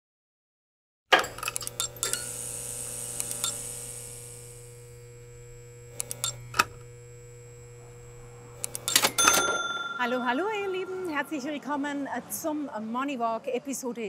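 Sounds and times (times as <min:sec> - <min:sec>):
steady low hum: 0:01.7 - 0:11.8.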